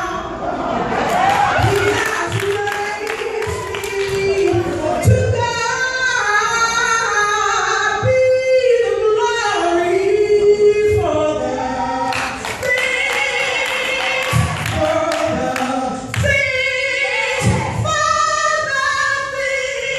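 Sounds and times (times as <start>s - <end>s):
woman singing gospel: 1.3s - 19.9s
choir singing: 11.1s - 16.2s.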